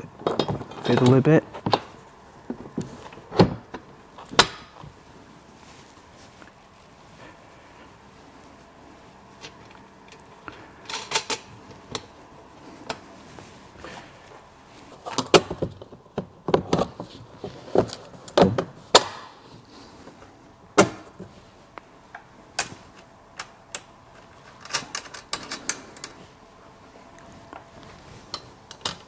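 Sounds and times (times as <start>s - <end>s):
knocks and clatter of metal parts: 0.0s - 4.8s, 15.0s - 19.4s, 23.4s - 26.2s, 28.2s - 29.0s.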